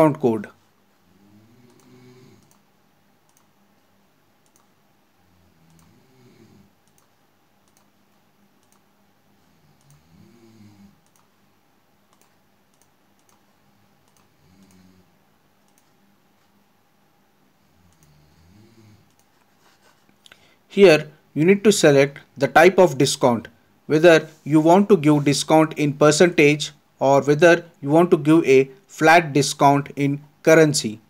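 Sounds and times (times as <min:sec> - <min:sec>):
faint keyboard clicks: 0:01.7 - 0:02.6, 0:03.2 - 0:03.5, 0:04.4 - 0:04.8, 0:06.8 - 0:08.9, 0:11.0 - 0:11.3, 0:12.1 - 0:14.8, 0:15.6 - 0:16.0, 0:17.9 - 0:18.2, 0:19.0 - 0:20.4.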